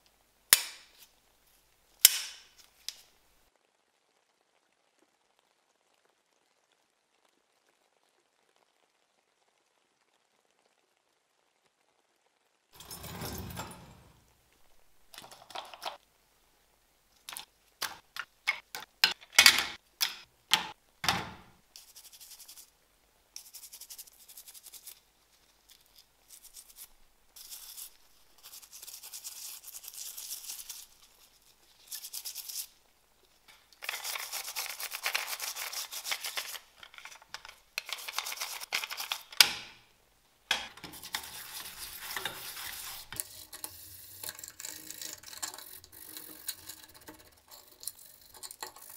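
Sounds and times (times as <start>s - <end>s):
toothbrush scrubbing metal in water: 23.4s - 25.0s, 25.7s - 32.7s, 33.6s - 39.4s, 40.6s - 48.9s.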